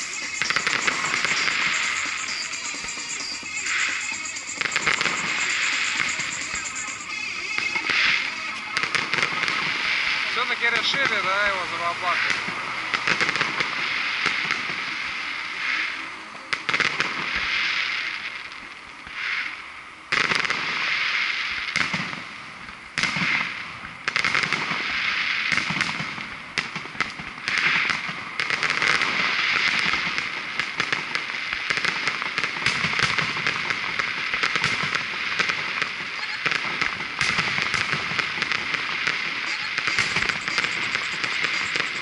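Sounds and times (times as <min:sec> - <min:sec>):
fireworks crackling: 0:00.0 - 0:42.0
firework shells bursting: 0:21.6 - 0:42.0.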